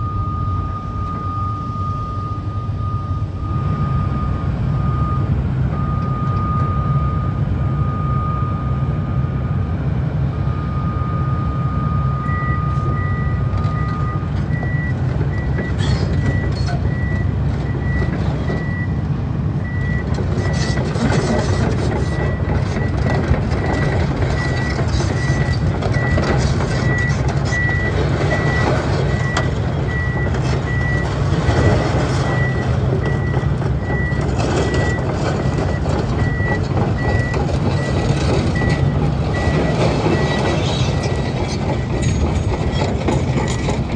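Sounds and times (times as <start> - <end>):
travel alarm beeping: 0.0 - 8.8, 10.5 - 15.6
excavator diesel engine: 0.0 - 43.9
steel tracks rattling: 30.4 - 43.9.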